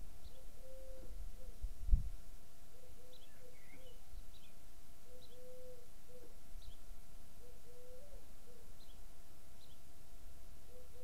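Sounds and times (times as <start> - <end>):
dove cooing: 0.3 - 1.6, 2.8 - 4.0, 5.1 - 6.4, 7.4 - 8.7, 10.7 - 11.0
small birds chirping: 2.7 - 9.9.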